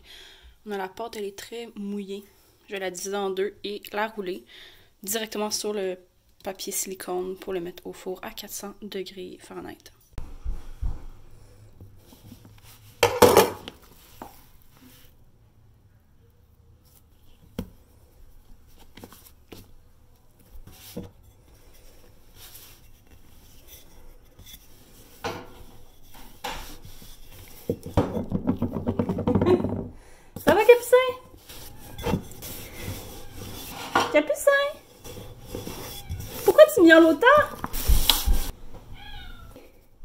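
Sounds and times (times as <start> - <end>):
hands working dough: 16.8 - 38.6.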